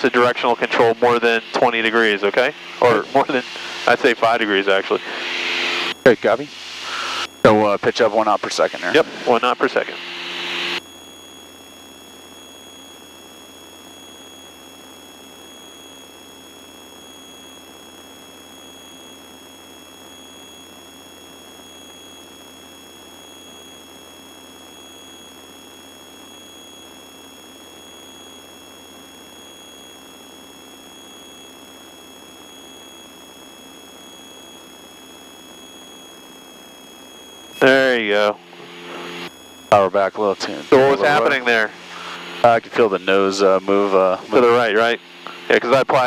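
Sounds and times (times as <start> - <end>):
muffled engine drone: 0.0 - 46.0
thin whining tones: 26.0 - 46.0.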